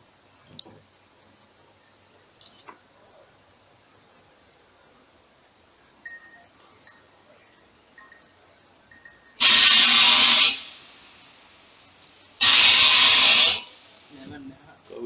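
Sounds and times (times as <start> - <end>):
loud hissing blasts: 9.4 - 11.7, 12.4 - 14.2.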